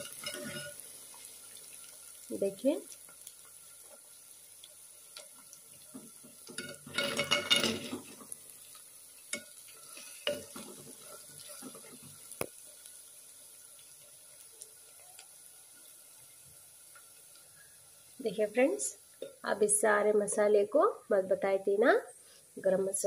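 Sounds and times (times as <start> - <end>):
spoon clinking against pot: 0.0 - 0.8
faint frying sizzle: 0.0 - 23.0.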